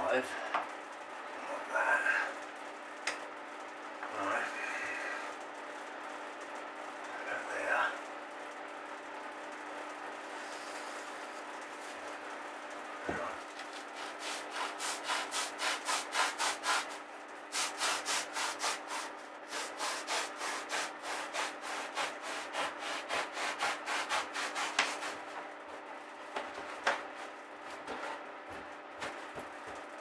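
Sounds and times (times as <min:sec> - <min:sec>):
blade sawing through foam: 0:13.8 - 0:17.0, 0:17.6 - 0:25.3.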